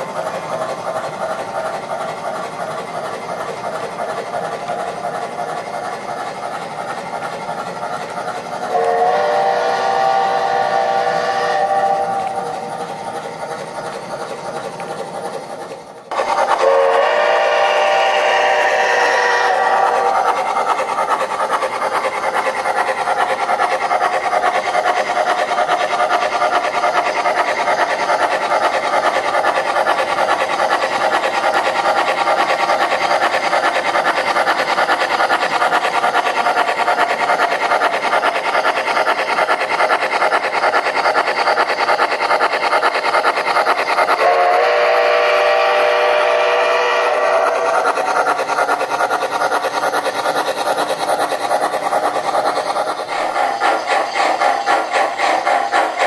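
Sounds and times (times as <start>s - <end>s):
rapid steam chuffing: 0.0s - 56.0s
steam whistle: 8.7s - 12.4s, 16.5s - 20.2s, 44.2s - 47.8s.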